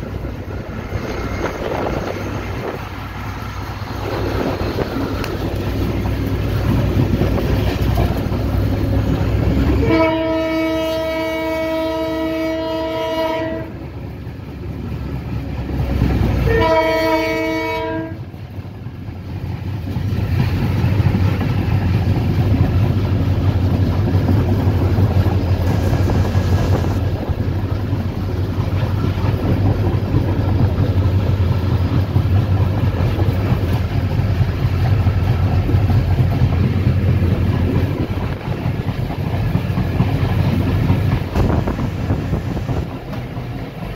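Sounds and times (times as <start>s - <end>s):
train rumble and wheel clatter: 0.0s - 43.9s
train horn blasts: 9.8s - 13.8s, 16.4s - 18.3s.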